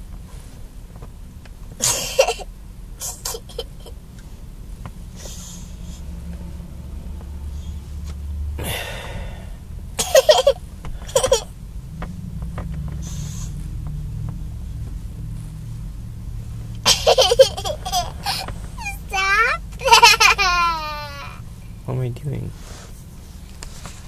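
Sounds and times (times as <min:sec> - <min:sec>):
low car hum: 0:00.0 - 0:24.0
girl laughing: 0:03.1 - 0:03.9, 0:10.0 - 0:11.5, 0:16.8 - 0:18.9, 0:19.8 - 0:21.4.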